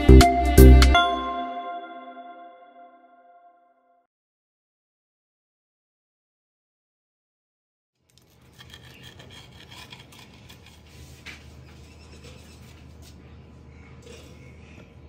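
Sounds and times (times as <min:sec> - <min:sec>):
toasted sandwich scraping on board: 0:08.2 - 0:12.8.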